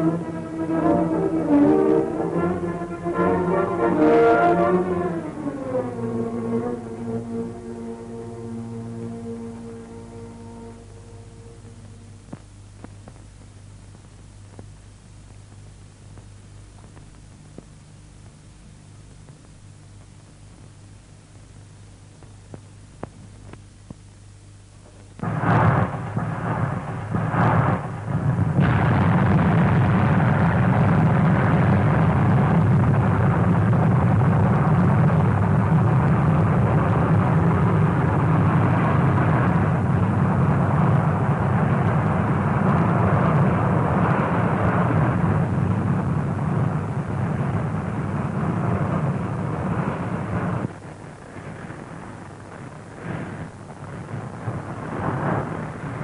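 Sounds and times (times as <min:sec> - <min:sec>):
rocket engine roar: 0:00.0 - 0:12.4, 0:25.2 - 0:56.0.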